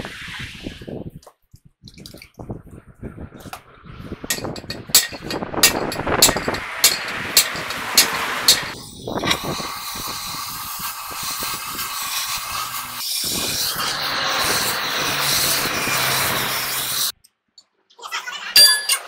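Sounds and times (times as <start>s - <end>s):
torch flame hissing: 8.7s - 17.1s.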